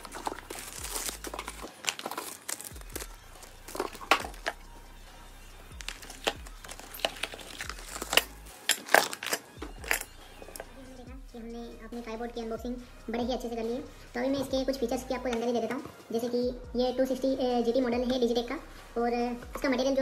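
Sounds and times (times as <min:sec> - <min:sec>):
packing paper crumpling: 0:00.0 - 0:04.6, 0:05.8 - 0:10.1.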